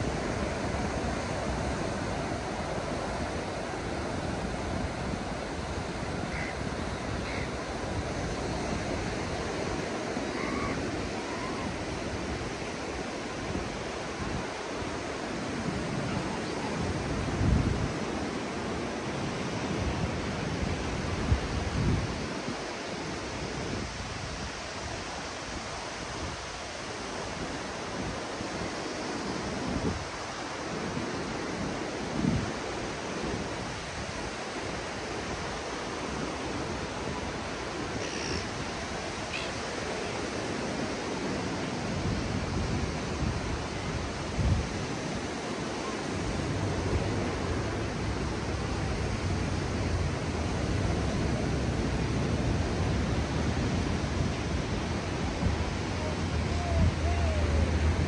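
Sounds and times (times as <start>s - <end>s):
ocean surf breaking: 0.0s - 58.0s
wind buffeting microphone: 36.6s - 58.0s.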